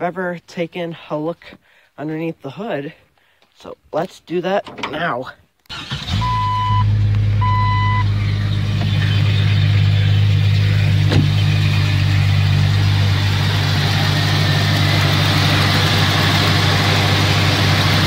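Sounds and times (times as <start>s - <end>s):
car engine idling: 5.8s - 18.0s
electronic dashboard chime: 6.2s - 8.2s.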